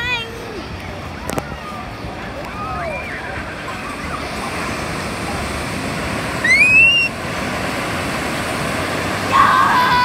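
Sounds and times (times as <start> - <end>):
wave breaking and rushing foam: 3.1 - 10.0.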